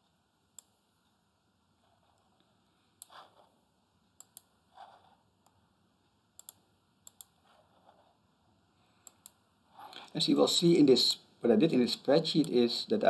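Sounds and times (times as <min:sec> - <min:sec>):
computer mouse clicking: 0:03.0 - 0:03.5, 0:04.2 - 0:05.6, 0:06.4 - 0:08.1, 0:09.0 - 0:09.4.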